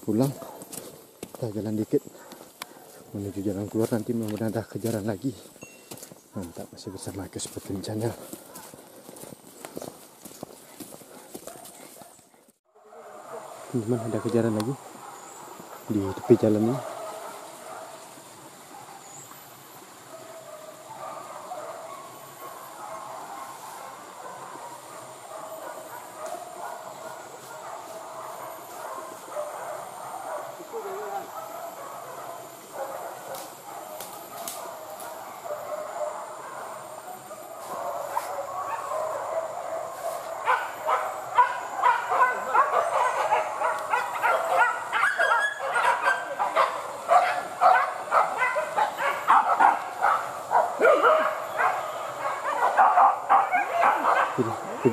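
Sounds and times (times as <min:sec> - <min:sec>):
hunting dogs baying and yelping: 0:00.0 - 0:54.9
high-pitched insect drone: 0:24.8 - 0:45.2.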